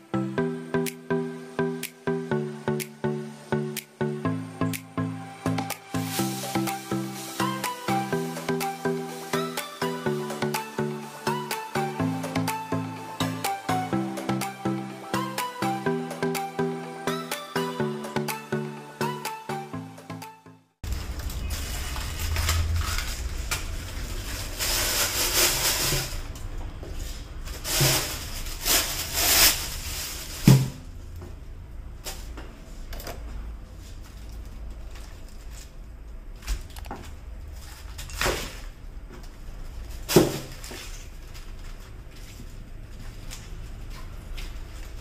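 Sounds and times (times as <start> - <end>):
plastic bag rustling: 5.9 - 11.2, 20.8 - 31.0.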